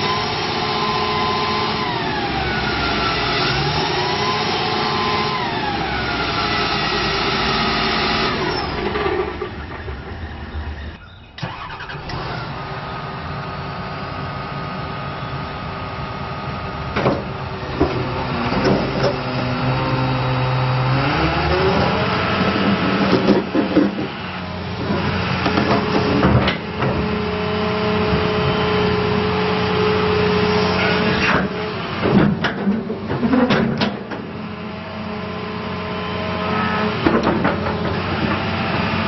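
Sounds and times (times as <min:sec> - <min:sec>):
excavator diesel engine running: 0:00.0 - 0:39.0
hydraulic clunks and knocks: 0:16.9 - 0:19.4, 0:22.5 - 0:24.2, 0:24.8 - 0:27.3, 0:30.8 - 0:34.4, 0:36.9 - 0:39.0.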